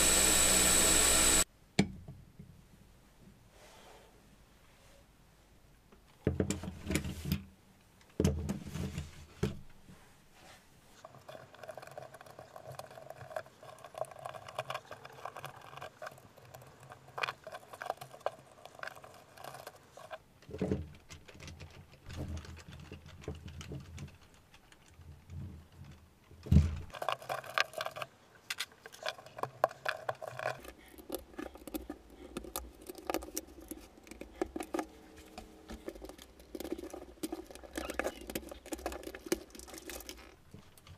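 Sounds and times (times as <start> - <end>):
pitched whir: 0.0 - 1.4
plastic parts clicking and rattling: 14.2 - 40.9.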